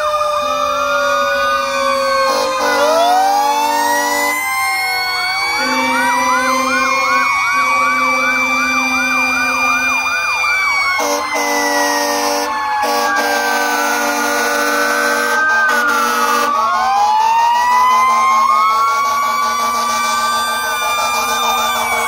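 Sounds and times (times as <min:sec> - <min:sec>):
fast siren yelp: 0:00.0 - 0:22.0
fire engine sirens wailing: 0:00.0 - 0:22.0
truck air horn blasts: 0:02.2 - 0:03.2, 0:05.5 - 0:09.9, 0:11.0 - 0:16.6, 0:19.0 - 0:20.3.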